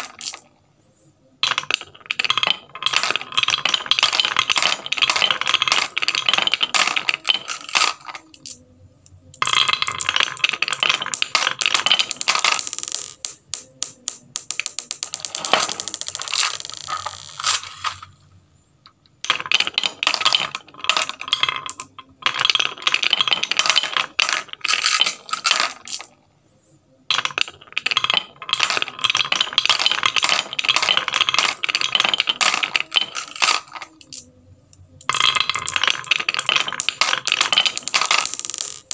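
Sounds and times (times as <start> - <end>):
marbles clattering into plastic truck: 0.0 - 0.5, 1.4 - 8.6, 9.2 - 18.2, 19.2 - 26.2, 27.1 - 38.9
marbles rattling down wooden chute: 0.0 - 0.5, 1.4 - 18.2, 19.2 - 26.2, 27.1 - 38.9.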